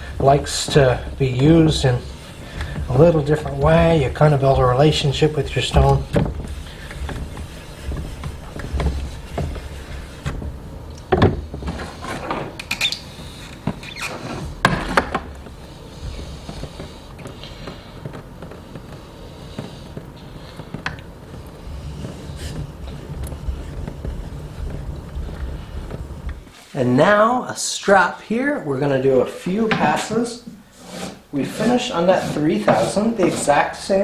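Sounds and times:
knife scraping on whetstone: 29.8s - 34.0s.

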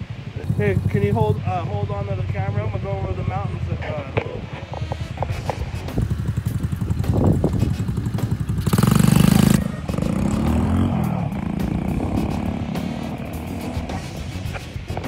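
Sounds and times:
small engine revving: 4.4s - 14.6s.

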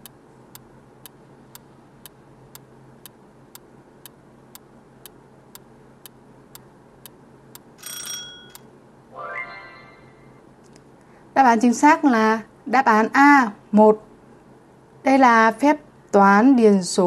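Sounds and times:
short bell ring: 7.8s - 8.6s
rising tone: 9.2s - 10.3s.

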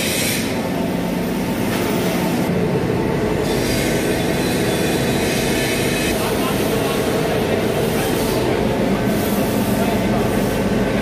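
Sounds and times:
industrial oven burner and blower hum: 0.0s - 11.0s.

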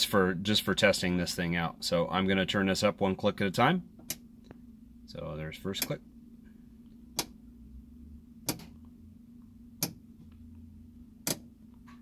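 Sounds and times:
faint steady hum: 0.0s - 12.0s
rotary switch clicks: 8.5s - 8.8s, 9.8s - 10.0s, 11.2s - 11.5s.

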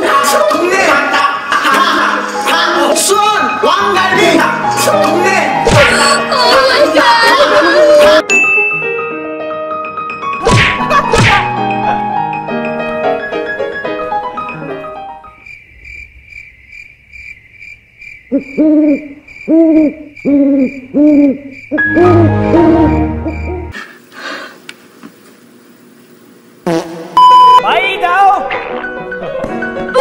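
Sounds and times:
cricket chirp effect: 15.2s - 23.8s
owl-like hoot: 18.3s - 23.7s.

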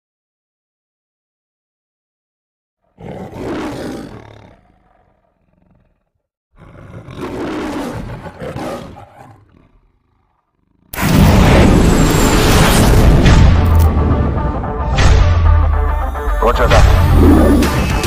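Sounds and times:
lion roaring: 2.8s - 11.5s, 16.0s - 18.0s.

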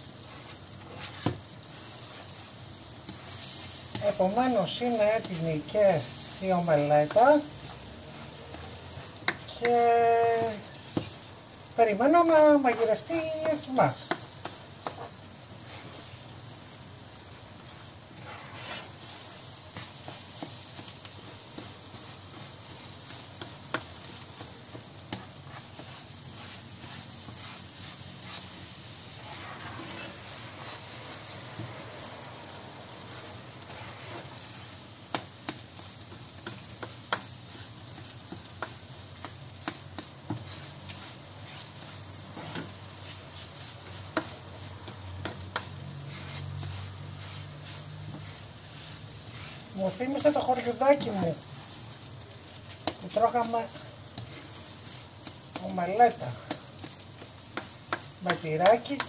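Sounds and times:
spatula scraping a pan: 0.0s - 32.2s, 33.0s - 59.0s
eggs sizzling in a frying pan: 0.0s - 59.0s
spatula tapping a pan: 1.0s - 1.5s, 6.8s - 11.2s, 12.8s - 15.2s, 19.1s - 28.4s, 35.0s - 51.4s, 52.5s - 59.0s.

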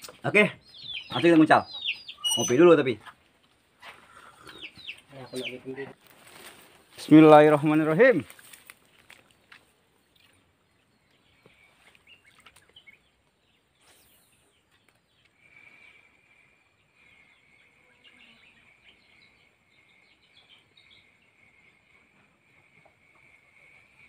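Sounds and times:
bird chirps: 0.0s - 3.2s, 3.9s - 6.0s, 10.0s - 24.0s
high insect buzz: 15.4s - 20.0s.

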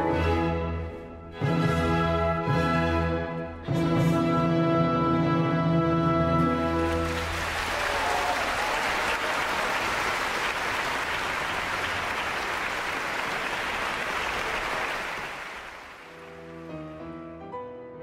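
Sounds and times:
audience applauding: 6.7s - 16.8s.

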